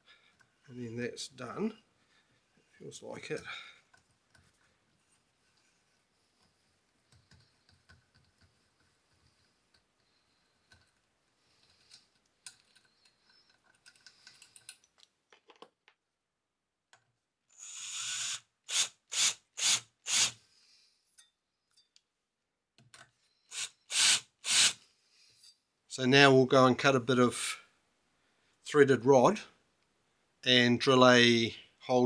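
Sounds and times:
cordless drill running: 0:17.6 - 0:20.4, 0:23.5 - 0:24.8.

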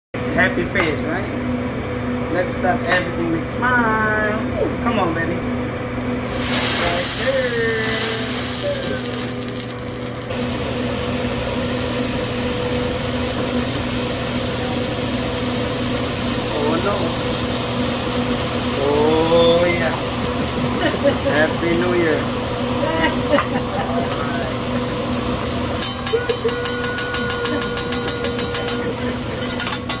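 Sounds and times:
steady low hum: 0:00.2 - 0:30.0
flame crackling: 0:06.1 - 0:25.8
food sizzling on a griddle: 0:06.1 - 0:30.0
steady high tone: 0:22.6 - 0:30.0
metal spatulas clacking on griddle: 0:29.4 - 0:30.0.

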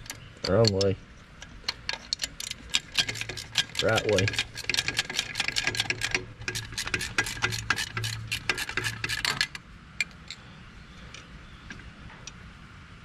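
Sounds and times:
ratcheting wrench clicking: 0:00.0 - 0:10.4.

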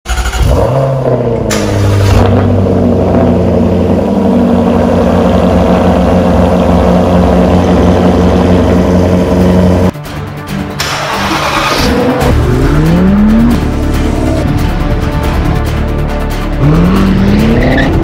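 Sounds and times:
car engine exhaust idling: 0:01.4 - 0:09.9.

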